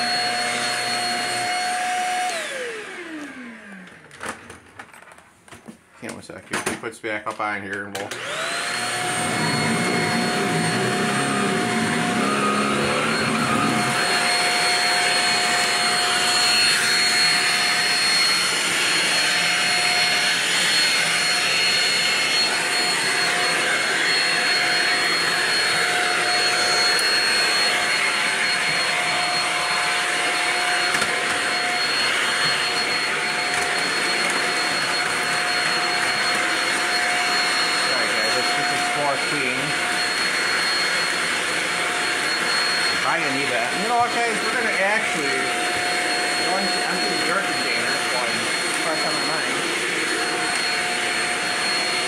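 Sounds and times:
vacuum cleaner running: 0:00.0 - 0:04.6, 0:07.9 - 0:52.0.

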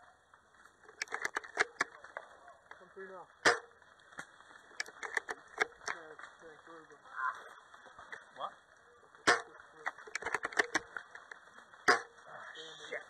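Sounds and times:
airsoft guns firing: 0:03.4 - 0:03.8, 0:09.2 - 0:11.0, 0:11.8 - 0:12.2.

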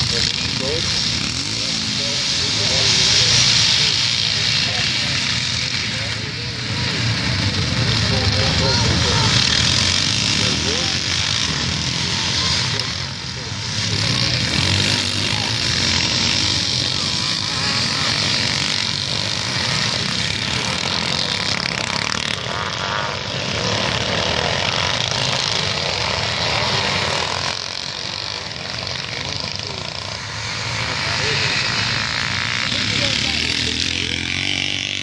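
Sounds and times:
motocross motorcycles revving: 0:00.0 - 0:35.0.

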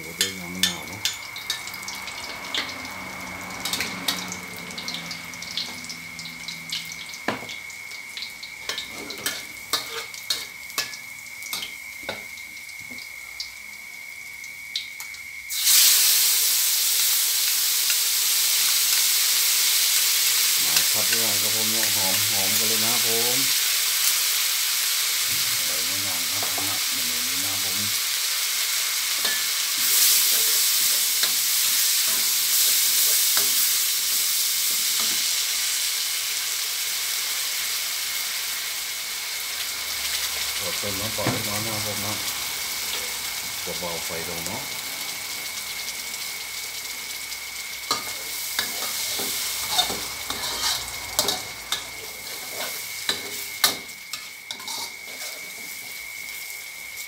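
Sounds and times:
garlic frying in a wok: 0:00.0 - 0:57.0
loud steady sizzle in hot oil: 0:00.0 - 0:57.0
metal spatula tapping and scraping: 0:08.7 - 0:10.9, 0:47.9 - 0:51.4.

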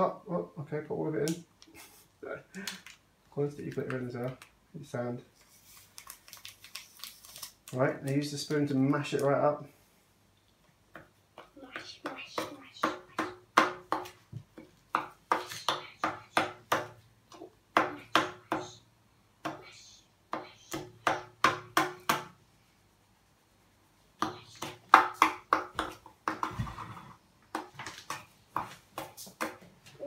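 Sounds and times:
plastic spoon tapping plastic bowl: 0:24.2 - 0:26.6.

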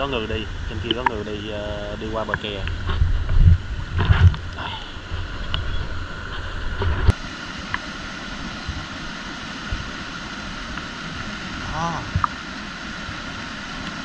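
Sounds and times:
stream water running: 0:00.0 - 0:14.0
wind buffeting microphone: 0:01.7 - 0:07.2.

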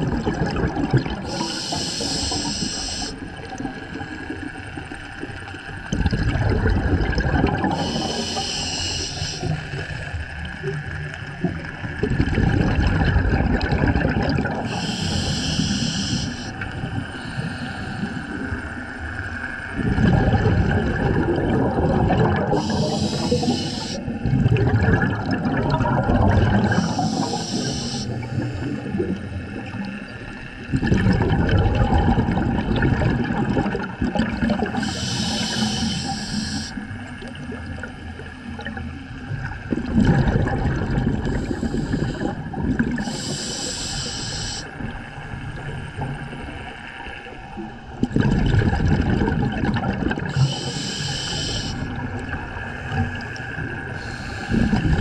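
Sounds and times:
bubbles gurgling: 0:00.0 - 0:43.6, 0:44.7 - 0:55.0
regulator hissing: 0:01.3 - 0:03.1, 0:07.8 - 0:09.5, 0:14.7 - 0:16.6, 0:22.6 - 0:24.0, 0:26.8 - 0:28.2, 0:34.8 - 0:36.8, 0:43.1 - 0:44.7, 0:50.4 - 0:51.8.

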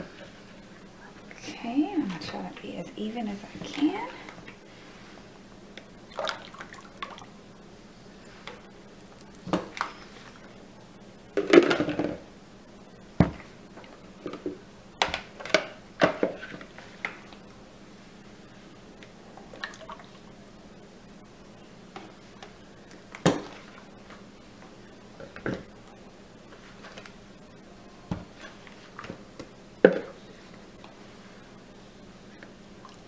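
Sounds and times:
plastic bowls knocking and clattering: 0:11.4 - 0:12.2.

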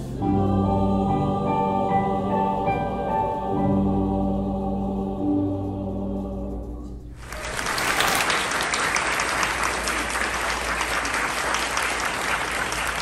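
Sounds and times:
audience applause: 0:07.2 - 0:13.0.

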